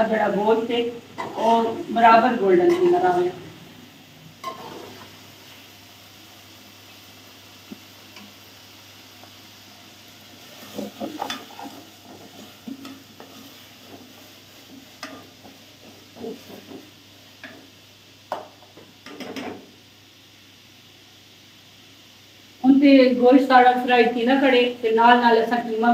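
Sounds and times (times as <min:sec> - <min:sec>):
meat sizzling in oil: 0:00.5 - 0:25.9
spoon scraping and knocking pot: 0:10.8 - 0:13.4.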